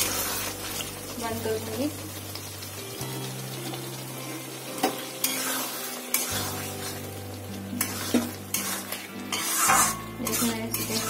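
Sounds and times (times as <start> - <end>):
curry sizzling in a pan: 0.0 - 11.0
spatula knocking and scraping pan: 7.8 - 11.0.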